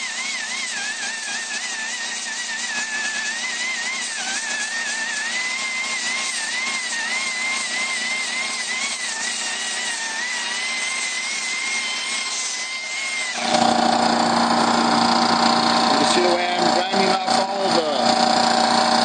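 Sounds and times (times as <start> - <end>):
die grinder whine on metal: 0.0 - 19.0.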